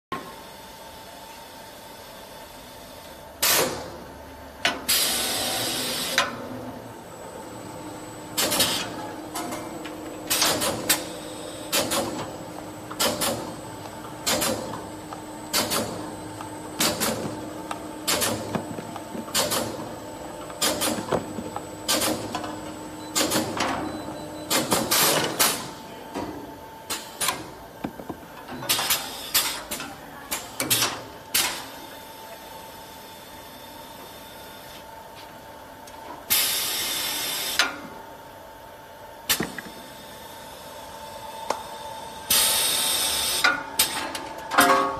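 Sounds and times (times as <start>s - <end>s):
steady machine hum: 0.2s - 30.3s.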